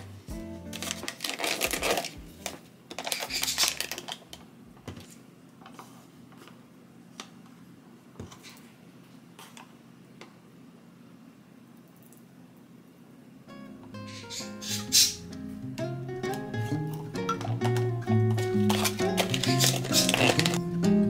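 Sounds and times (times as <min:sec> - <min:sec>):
plastic lid crinkly rustles: 0:00.7 - 0:04.3, 0:18.5 - 0:20.6.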